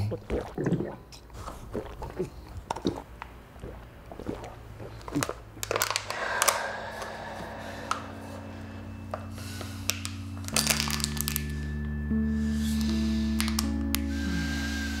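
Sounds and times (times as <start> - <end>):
man gulping water: 0.0 - 7.2.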